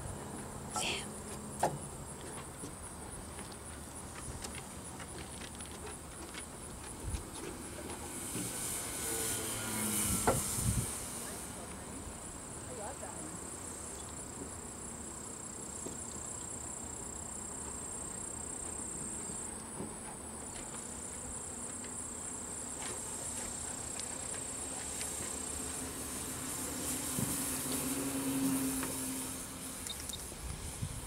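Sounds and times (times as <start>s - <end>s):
model plane propeller buzzing: 7.3s - 12.2s.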